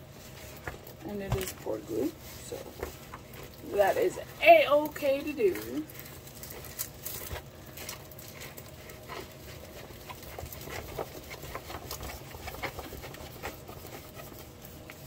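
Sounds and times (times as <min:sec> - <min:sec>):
canvas crinkling and rustling: 0:00.0 - 0:15.0.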